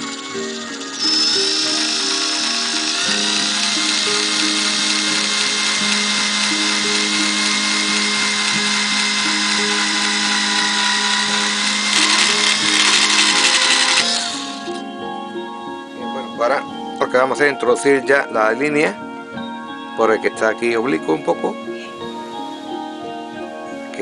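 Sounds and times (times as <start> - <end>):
cordless drill boring wood: 0.0 - 14.8
background music: 0.0 - 24.0.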